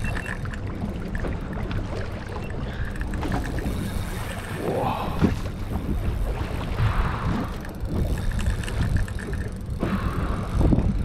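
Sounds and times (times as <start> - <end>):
swishing wash: 0.0 - 11.0
water lapping against hull: 0.0 - 11.0
wind buffeting microphone: 2.6 - 11.0.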